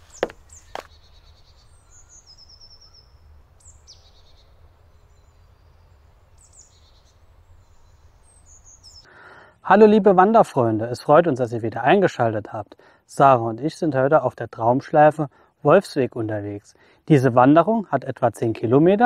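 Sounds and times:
songbirds chirping and trilling: 0:00.0 - 0:09.9.

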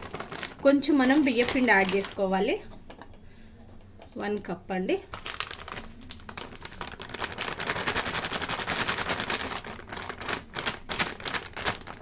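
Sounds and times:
plastic packet snapping: 0:00.0 - 0:02.2, 0:05.1 - 0:12.0
plastic packet crinkling: 0:00.0 - 0:03.2, 0:05.0 - 0:12.0.

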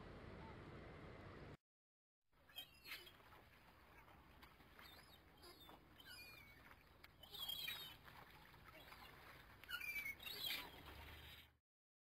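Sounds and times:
faint bird chirps and whistles: 0:02.4 - 0:04.1, 0:04.7 - 0:11.5.

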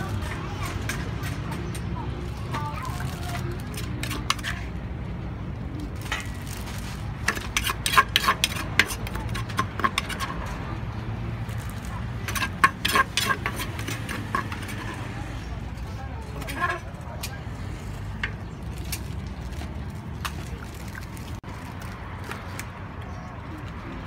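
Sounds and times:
metal spoon scraping clay mortar: 0:03.4 - 0:04.8, 0:07.1 - 0:10.7, 0:11.6 - 0:15.4, 0:16.3 - 0:16.9.

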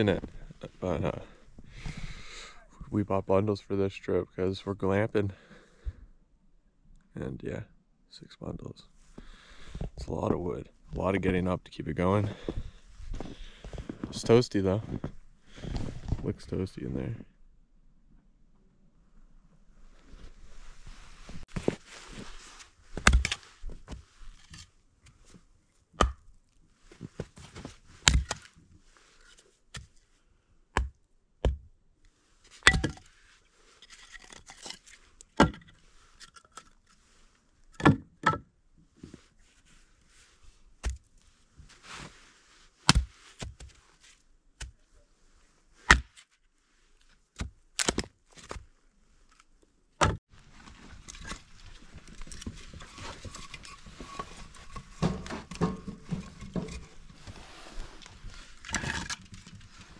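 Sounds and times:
hatchet chopping firewood: 0:23.0 - 0:23.4, 0:26.0 - 0:26.3, 0:28.0 - 0:28.4, 0:30.8 - 0:31.7, 0:32.6 - 0:33.0, 0:42.9 - 0:43.6, 0:45.9 - 0:46.2, 0:47.4 - 0:48.1.

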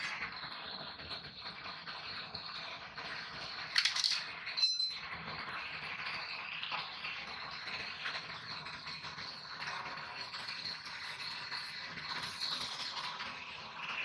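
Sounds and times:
metal hand tools clinking: 0:03.8 - 0:05.0.

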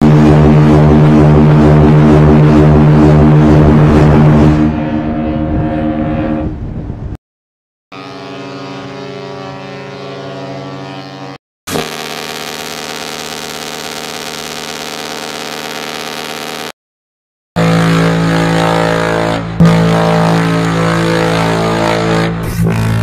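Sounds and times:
ship's horn blasts: 0:00.0 - 0:07.2, 0:07.9 - 0:13.3, 0:17.6 - 0:23.0.

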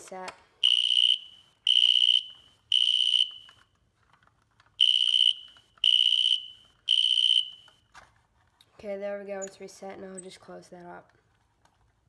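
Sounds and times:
fire alarm horn blasts: 0:00.6 - 0:03.6, 0:04.8 - 0:07.8.

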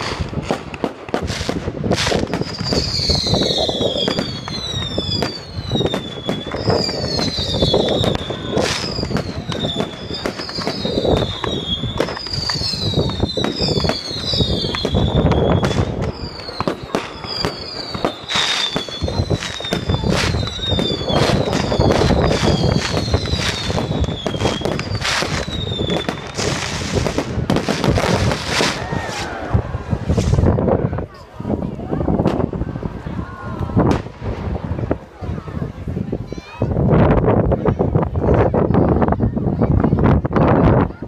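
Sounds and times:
whistling fireworks: 0:00.0 - 0:36.8
firework bangs and crackling: 0:00.0 - 0:41.0.

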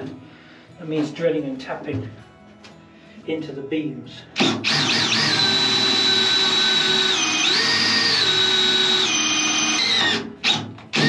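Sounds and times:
cordless drill boring wood: 0:04.4 - 0:11.0.

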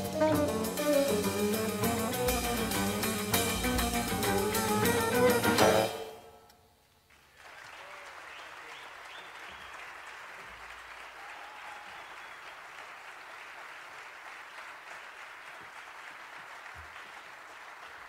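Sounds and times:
audience applauding: 0:07.1 - 0:18.0.

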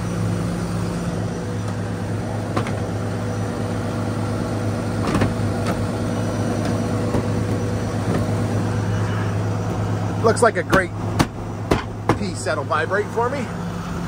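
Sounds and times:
diesel engine idling: 0:00.0 - 0:14.0.

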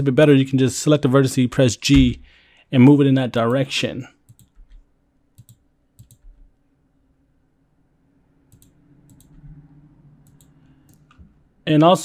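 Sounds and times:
mouse and keyboard clicks: 0:05.4 - 0:06.2, 0:08.5 - 0:09.4.

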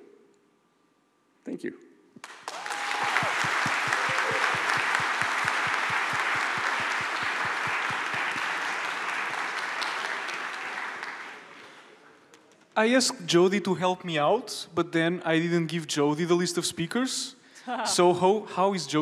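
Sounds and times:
nearer single person clapping: 0:02.2 - 0:11.9
audience applause: 0:02.2 - 0:12.0.

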